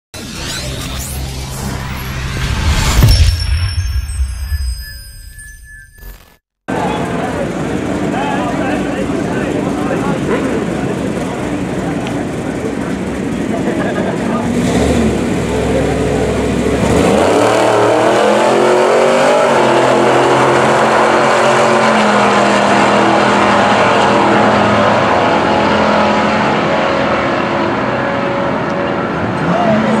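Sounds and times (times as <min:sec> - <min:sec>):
race car engines accelerating: 0:06.7 - 0:30.0.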